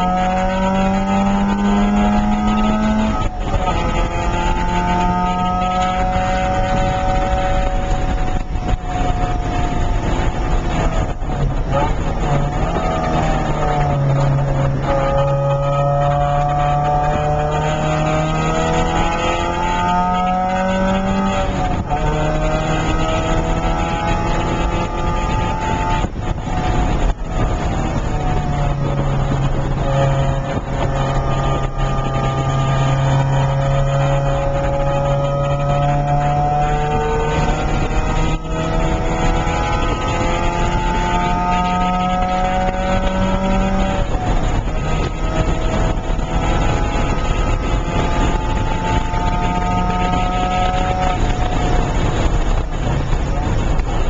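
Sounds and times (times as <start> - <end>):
car engine accelerating: 0.0 - 54.0
wind and road noise: 0.0 - 54.0.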